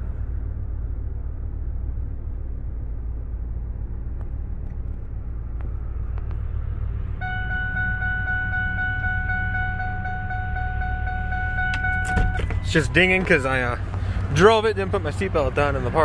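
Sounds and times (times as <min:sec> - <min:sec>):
truck engine idling: 0:00.0 - 0:16.0
dashboard chime dinging: 0:07.2 - 0:13.4.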